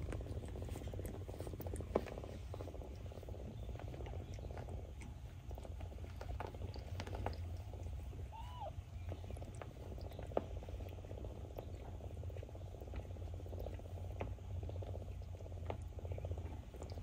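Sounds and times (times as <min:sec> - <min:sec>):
cat purring: 0:00.0 - 0:17.0.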